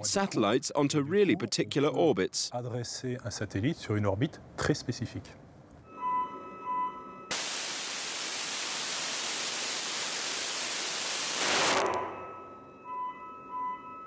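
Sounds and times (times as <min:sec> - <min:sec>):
rocket motor hissing rush: 0:07.3 - 0:12.0.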